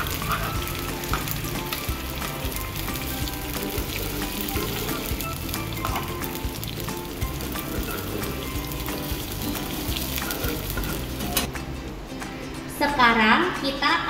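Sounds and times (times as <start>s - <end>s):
onions sizzling in a frying pan: 0.0s - 11.5s
background music: 0.0s - 14.0s
spatula scraping a pan: 7.4s - 11.5s.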